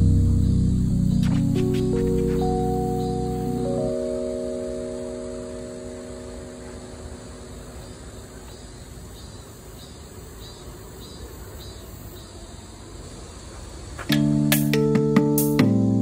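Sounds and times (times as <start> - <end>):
held chord of background music: 0.0 - 9.1
outdoor background noise: 0.0 - 16.0.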